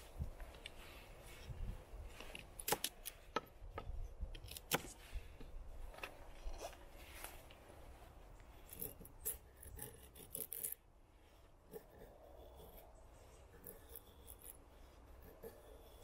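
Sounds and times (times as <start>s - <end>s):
knife scraping wood: 8.5s - 10.8s, 11.6s - 16.0s.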